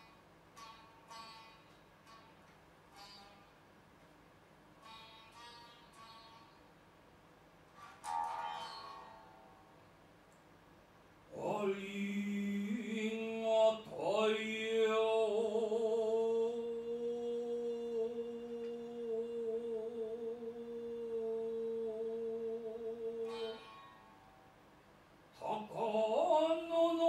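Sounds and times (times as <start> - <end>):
person chanting a hymn: 11.3 - 23.6, 25.4 - 27.0.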